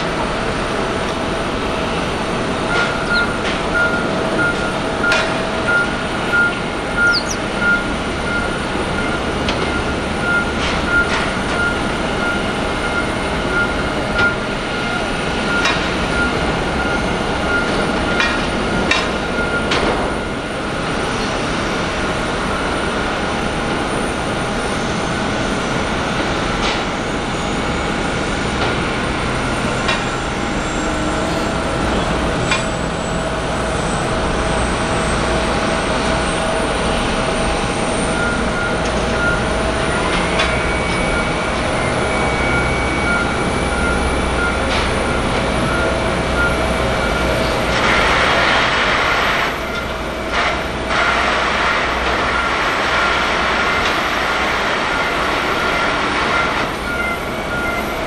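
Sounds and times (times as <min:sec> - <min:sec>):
steady rumble: 0:00.0 - 0:58.0
warning beeper: 0:00.3 - 0:20.6, 0:29.2 - 0:47.7, 0:54.9 - 0:58.0.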